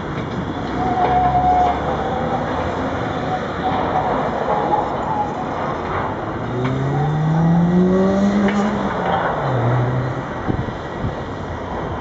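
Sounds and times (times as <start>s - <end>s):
road traffic noise: 0.0s - 12.0s
vehicle engine accelerating: 6.0s - 10.9s.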